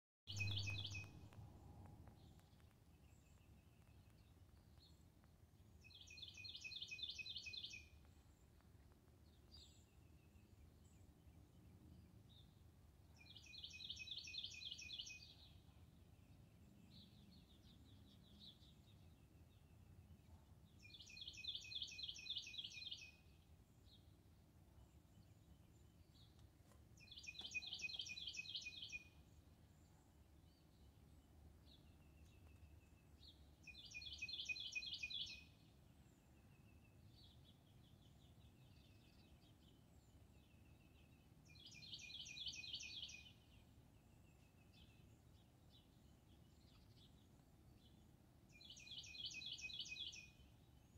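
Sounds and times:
faint bird chirps: 0.3s - 1.4s, 27.0s - 31.0s
bird whistled song: 27.1s - 29.1s, 33.6s - 35.5s, 41.5s - 43.4s, 48.6s - 50.4s.

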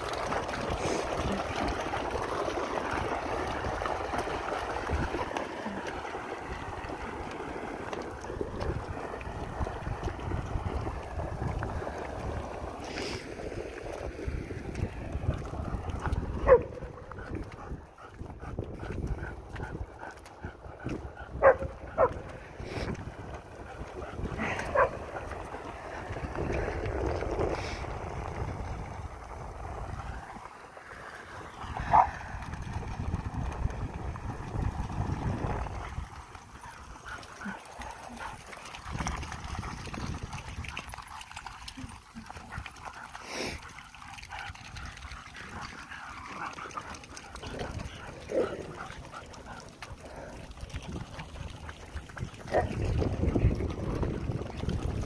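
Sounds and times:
dogs splashing through water: 0.0s - 55.0s
wind rumble on microphone: 0.0s - 55.0s
dog barking: 21.4s - 22.2s.

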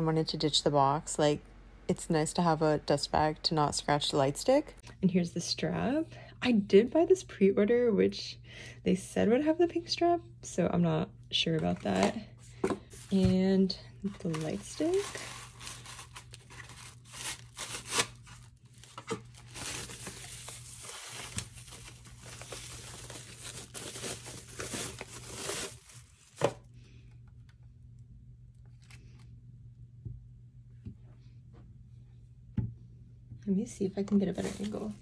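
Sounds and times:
paper wrapping rustling: 14.1s - 26.6s.

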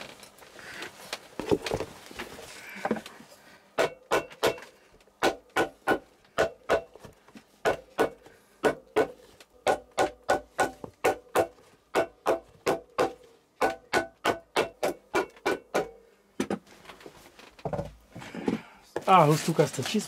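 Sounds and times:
handling rustle: 19.0s - 20.0s.

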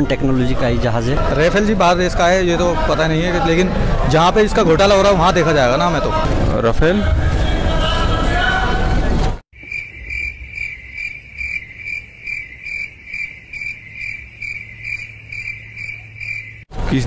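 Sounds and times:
high cricket chirp: 9.6s - 16.7s.

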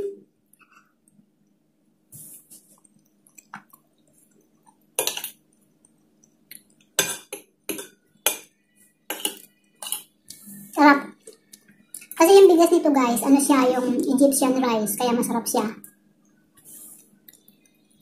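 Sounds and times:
cutlery clinking on a plate: 9.1s - 10.1s
cutlery scraping a plate: 9.1s - 10.1s.

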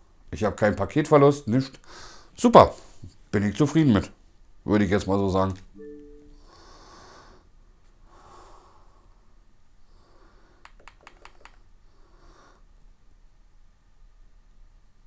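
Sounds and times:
soft breathing: 1.8s - 3.2s, 6.4s - 10.8s, 11.6s - 12.8s.

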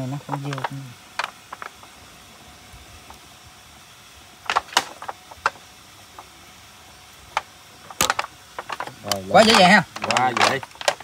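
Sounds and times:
clicks and knocks on engine parts: 0.0s - 2.0s, 4.4s - 6.3s, 7.3s - 11.0s.

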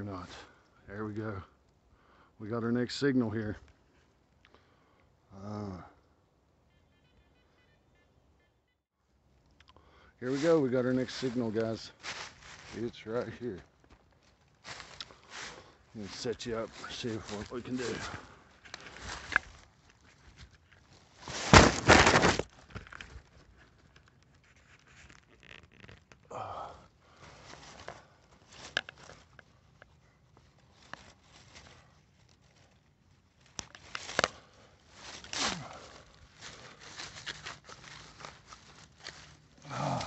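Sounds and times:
dry leaves crunching and rustling: 10.3s - 23.9s, 27.2s - 29.6s, 30.2s - 40.0s.

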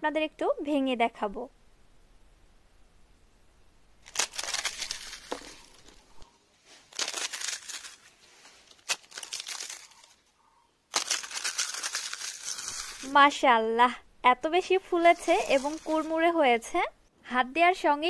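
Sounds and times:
crisp papads crackling: 4.0s - 10.3s, 10.9s - 13.2s, 15.0s - 16.3s.

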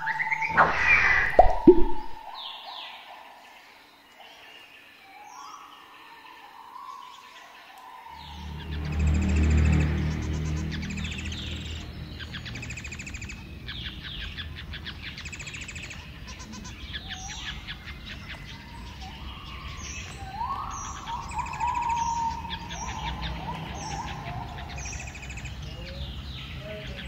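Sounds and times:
clear lower bird notes: 0.0s - 2.5s
finches singing buzzy notes: 0.0s - 3.0s.

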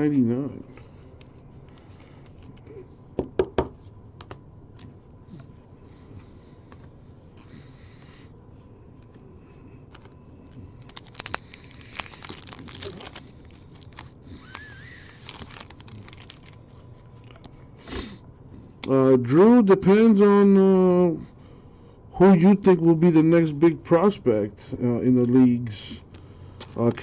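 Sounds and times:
cards shuffled: 9.8s - 10.2s, 10.8s - 17.6s
wrapper tearing and crinkling: 10.8s - 17.0s.

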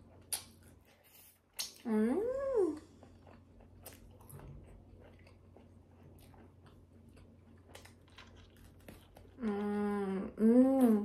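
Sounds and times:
mouth clicks and chewing: 0.0s - 1.9s, 2.9s - 9.7s.

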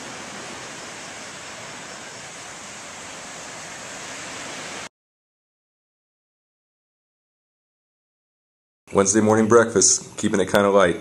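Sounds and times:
ocean surf washing on beach: 0.0s - 4.9s.

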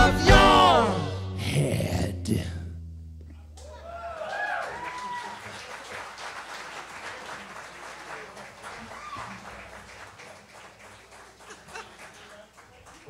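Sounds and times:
small audience applauding: 3.6s - 13.0s.

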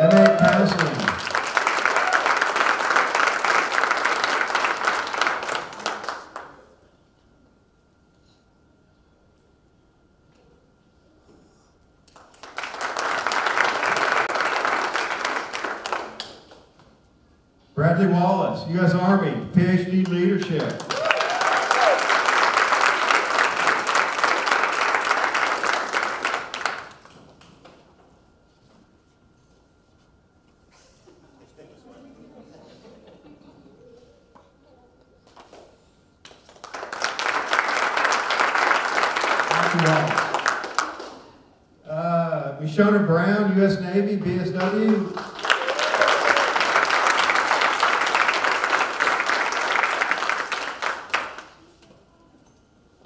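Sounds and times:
audience applauding: 0.0s - 6.6s, 12.1s - 16.7s, 20.0s - 27.5s, 36.3s - 41.4s, 44.6s - 51.7s.

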